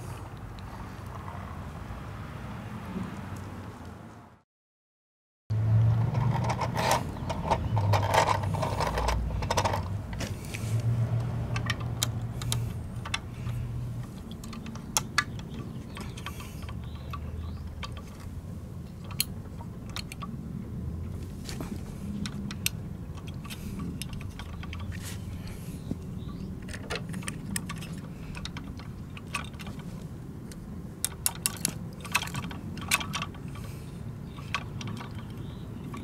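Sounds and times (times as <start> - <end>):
toy truck rolling on gritty surface: 6.0 - 10.4
small clicks and taps of toy parts: 11.2 - 17.2.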